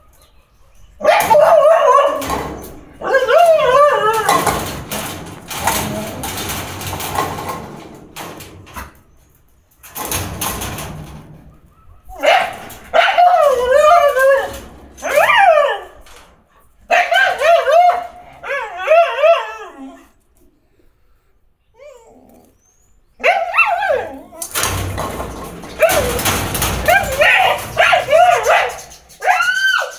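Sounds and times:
dogs whining: 0:00.0 - 0:04.8, 0:11.5 - 0:16.0, 0:21.7 - 0:29.9.

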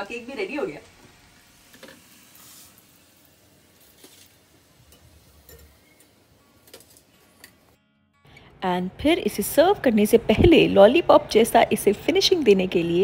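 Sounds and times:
utensils clicking and clinking: 0:04.9 - 0:07.6.

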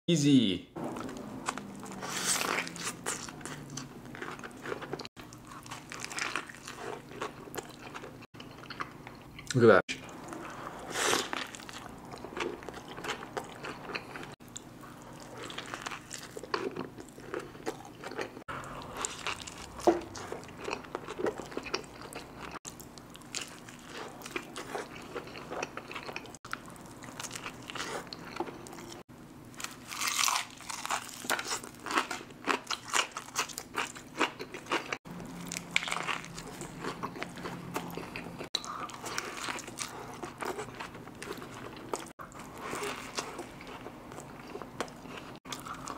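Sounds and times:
chewing burger: 0:00.9 - 0:09.5, 0:10.1 - 0:29.0, 0:29.6 - 0:45.9
crunching onion rings: 0:15.2 - 0:45.9.

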